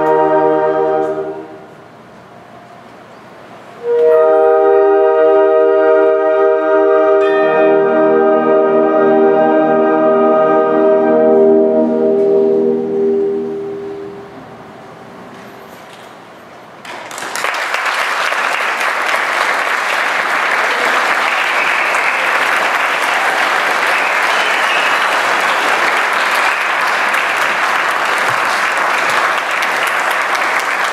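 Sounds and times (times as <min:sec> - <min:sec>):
audience applause: 0:16.8 - 0:30.9.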